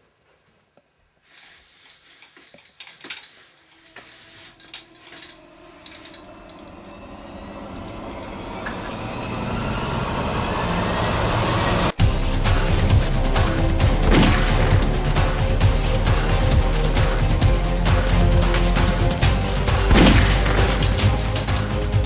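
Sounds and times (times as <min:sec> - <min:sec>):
rushing noise: 0:03.3 - 0:13.2.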